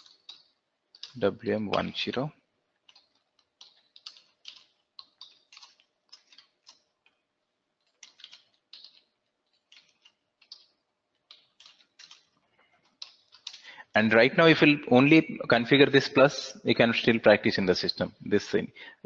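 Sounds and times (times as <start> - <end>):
faint keyboard typing: 0.0 - 14.0.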